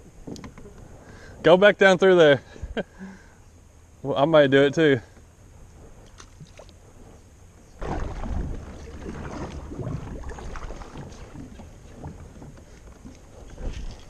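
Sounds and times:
low rumble: 7.6s - 14.0s
kayak paddle splashing water: 7.8s - 14.0s.

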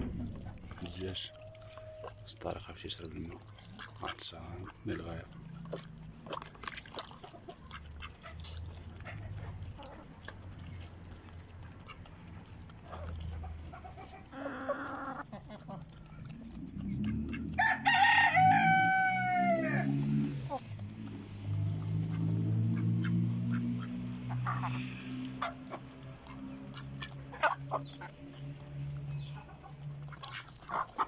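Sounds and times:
chickens clucking: 0.0s - 31.0s
chickens pecking grain: 0.0s - 31.0s
rooster crowing: 17.5s - 20.0s.

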